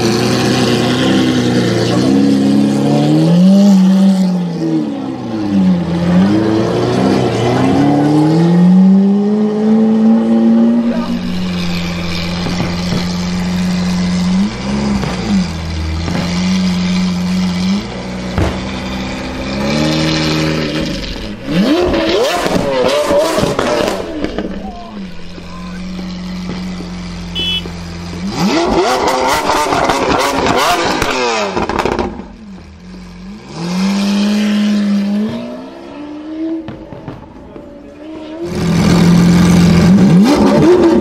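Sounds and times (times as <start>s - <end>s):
car engine revving: 0.0s - 41.0s
exhaust pops: 11.7s - 32.8s.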